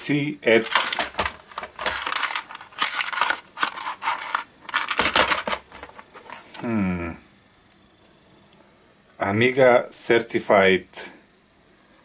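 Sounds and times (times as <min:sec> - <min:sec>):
packaging rustling: 0:00.5 - 0:06.6
plastic cases clicking: 0:00.6 - 0:06.4.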